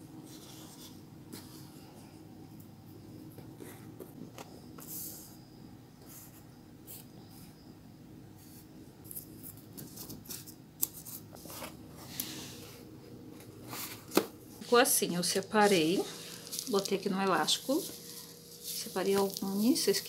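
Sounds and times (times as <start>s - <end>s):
leaves rustling on paper: 14.6s - 20.0s.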